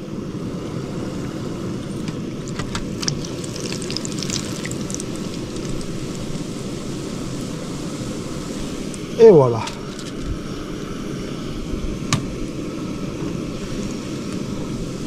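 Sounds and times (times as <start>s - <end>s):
sharp crackles: 2.4s - 6.8s
fritters sizzling in hot oil: 2.4s - 9.0s.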